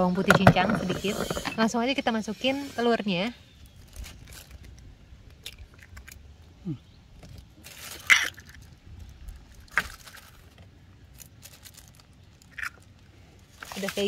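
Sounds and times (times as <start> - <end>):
egg cracking scrape: 0.3 - 1.6.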